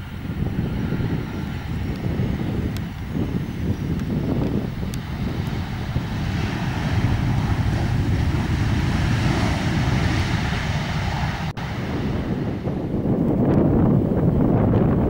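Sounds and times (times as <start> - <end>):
jet engine noise: 0.0 - 15.0
wind rumble on microphone: 0.0 - 15.0.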